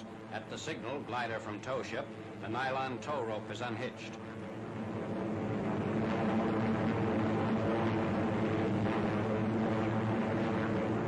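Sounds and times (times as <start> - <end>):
propeller aircraft engines droning: 0.0 - 11.0.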